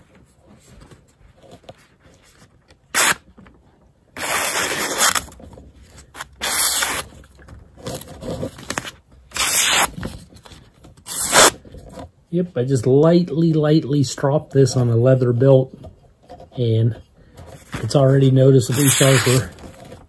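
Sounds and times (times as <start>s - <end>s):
knife slicing through paper: 4.2s - 5.4s, 6.2s - 7.1s, 18.7s - 19.5s.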